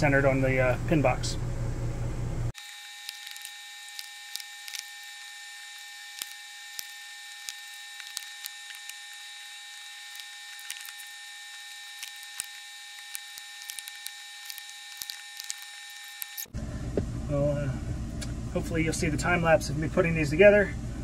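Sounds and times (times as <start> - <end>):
battery cells clicking and tapping: 2.6 - 16.5.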